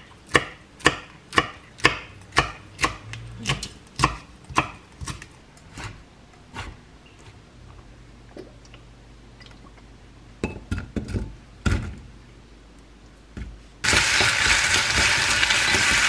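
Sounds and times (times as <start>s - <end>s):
knife chopping on wooden board: 0.3s - 6.0s.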